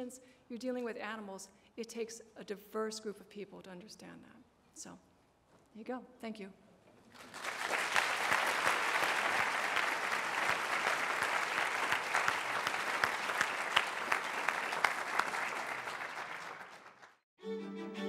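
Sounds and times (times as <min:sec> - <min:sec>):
audience applauding: 0:07.2 - 0:17.2
music: 0:17.4 - 0:18.0.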